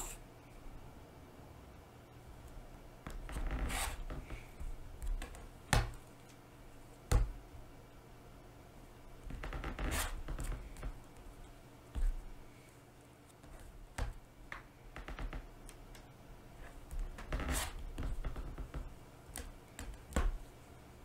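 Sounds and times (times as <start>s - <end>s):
rotary cutter scraping through fabric: 3.5s - 4.0s.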